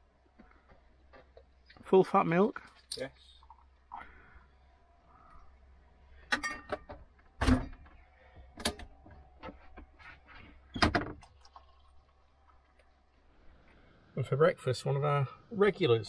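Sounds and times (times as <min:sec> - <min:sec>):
metal and crockery clinking: 0:06.3 - 0:07.0.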